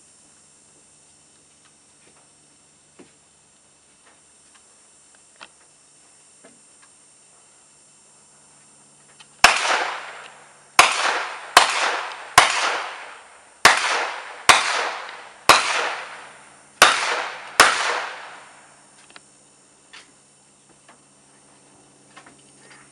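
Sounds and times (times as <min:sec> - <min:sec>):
rifle shots with echo: 0:09.4 - 0:18.6.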